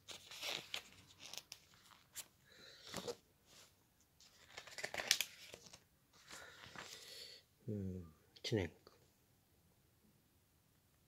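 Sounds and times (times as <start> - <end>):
magazine pages rustling: 0.0 - 7.1.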